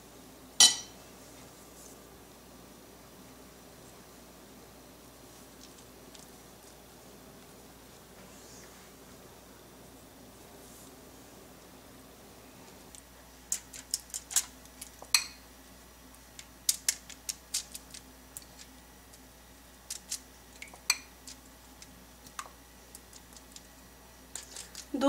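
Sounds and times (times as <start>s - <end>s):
pastry brush tapping bowl and tray: 0.6s - 1.0s, 15.0s - 15.4s.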